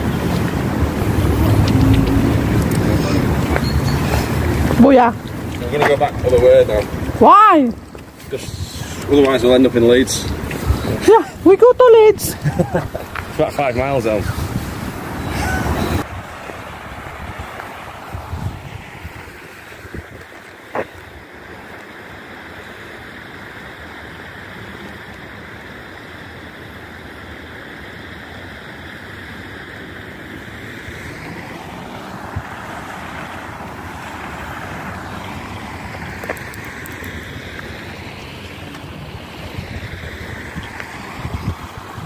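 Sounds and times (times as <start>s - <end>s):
wind on microphone: 0.0s - 20.3s, 34.7s - 42.0s.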